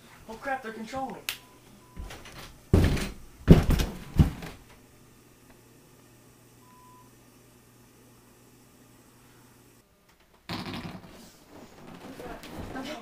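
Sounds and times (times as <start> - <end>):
loud thumps and scuffs: 2.0 - 4.6
person falling to the floor: 2.0 - 4.6, 10.5 - 13.0.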